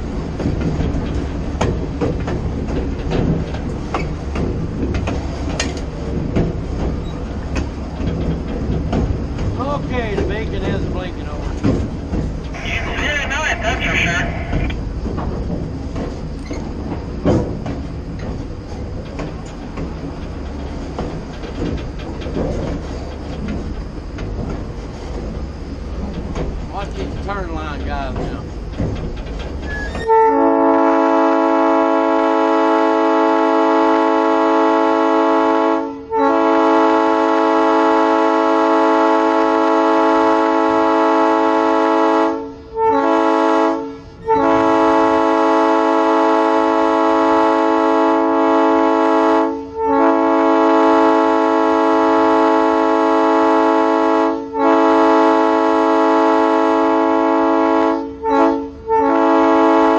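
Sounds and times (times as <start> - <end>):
locomotive air horn: 12.6 - 14.7, 30.0 - 59.9.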